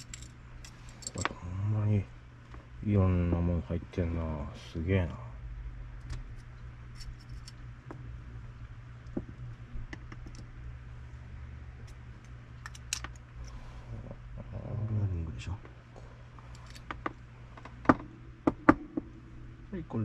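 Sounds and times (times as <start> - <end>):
small metal parts clicking: 0.0 - 1.4, 7.0 - 7.6, 11.9 - 13.5, 16.5 - 17.0
steady low hum: 0.0 - 20.0.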